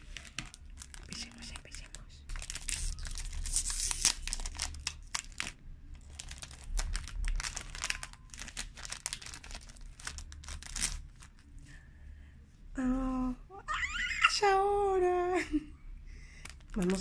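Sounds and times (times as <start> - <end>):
foil wrapper tearing and crinkling: 0.0 - 11.4, 16.4 - 17.0.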